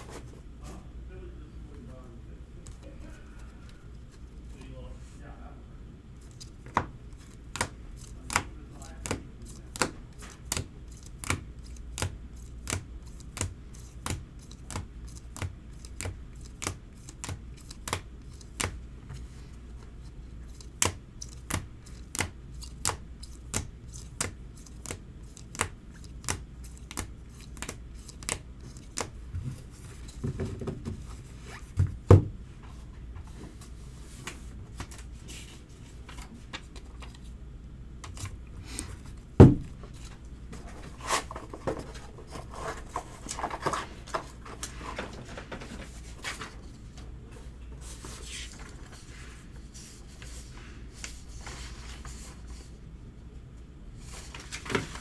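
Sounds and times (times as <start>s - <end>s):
cards clicking flipped through: 6.7s - 18.8s, 20.6s - 29.1s.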